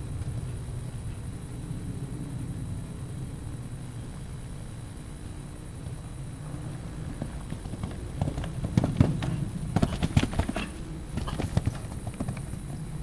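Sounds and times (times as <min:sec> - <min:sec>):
horse hoofbeats on sand: 0:06.8 - 0:12.8.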